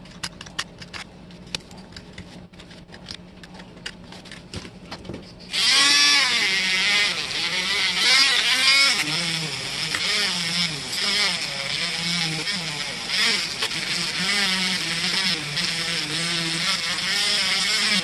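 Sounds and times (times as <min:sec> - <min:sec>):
rotary tool whining: 0:05.5 - 0:18.0.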